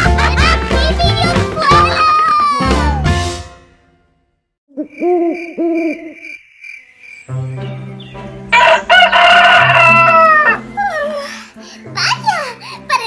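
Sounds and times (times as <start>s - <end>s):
owl hooting: 4.7s - 6.4s
crickets chirping: 4.7s - 7.6s
rooster crowing loudly: 8.5s - 10.7s.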